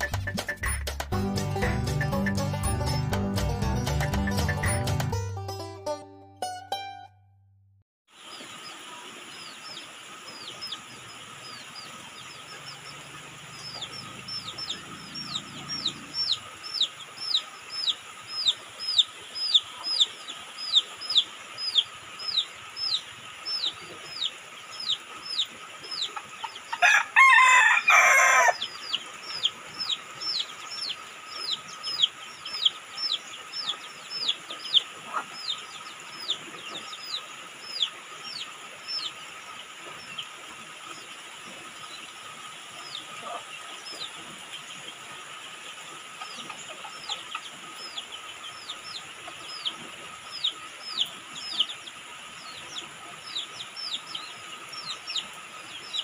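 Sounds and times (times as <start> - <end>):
steady rain hissing: 8.1 - 56.0
rooster crowing: 26.8 - 28.7.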